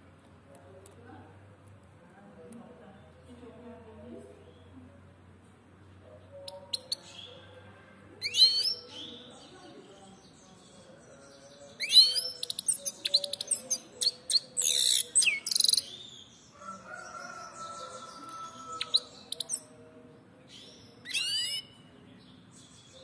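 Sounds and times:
goldfinch singing: 10.6 - 16.2.

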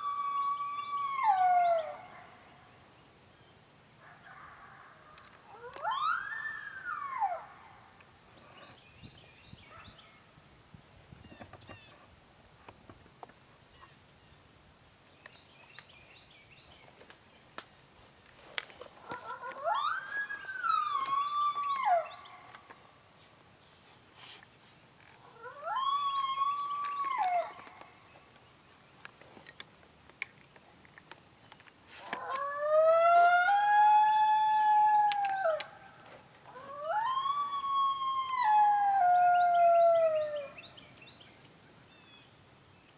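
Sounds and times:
coyote howl: 0.0 - 2.3, 5.2 - 7.6, 19.0 - 22.6, 25.3 - 27.8, 32.0 - 40.7.

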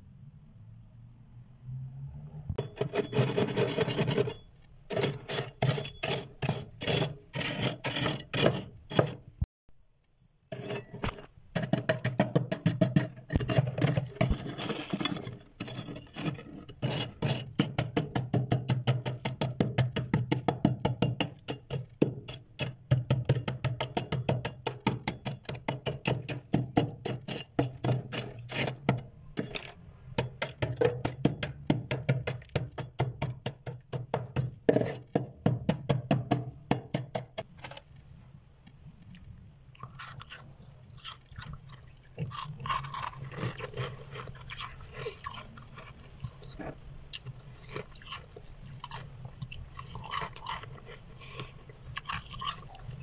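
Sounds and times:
frost being scraped: 2.6 - 9.2, 10.5 - 11.3, 12.9 - 17.8, 27.0 - 29.6.

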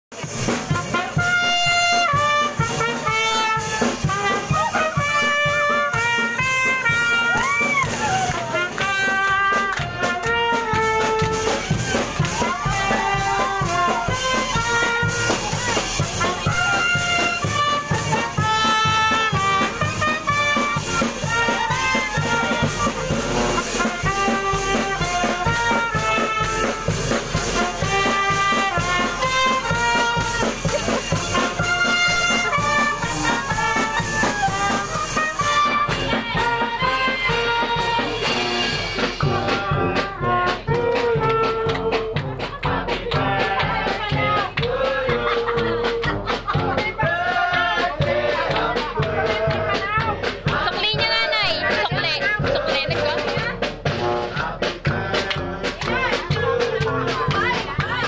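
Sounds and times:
clarinet and brass band playing: 0.1 - 58.0.

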